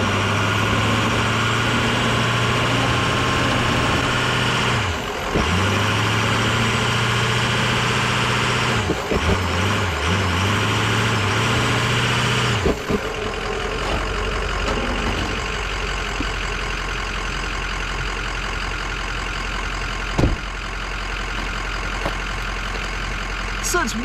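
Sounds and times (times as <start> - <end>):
diesel engine idling: 0.0 - 24.0
car door shutting: 20.1 - 20.5.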